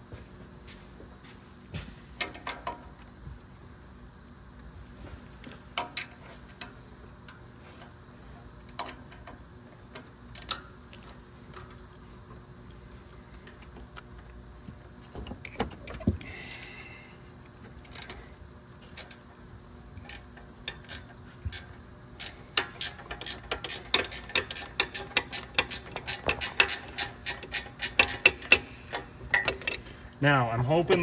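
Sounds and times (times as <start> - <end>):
ratcheting wrench clicking: 8.7 - 10.7, 17.8 - 18.2, 19.0 - 19.2, 20.0 - 29.9.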